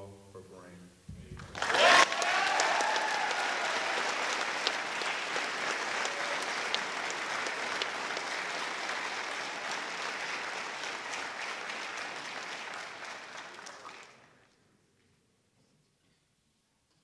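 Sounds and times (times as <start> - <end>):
audience cheering: 1.4 - 14.2
audience applauding: 1.4 - 14.5.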